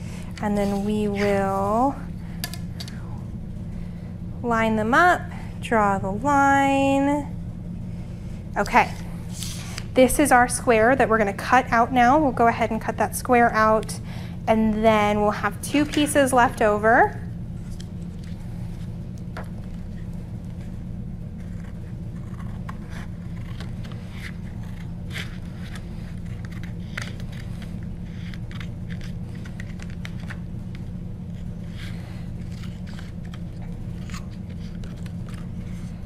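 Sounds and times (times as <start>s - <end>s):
steady low hum: 0.0s - 36.0s
scissors snipping paper: 21.4s - 30.4s, 32.4s - 35.6s.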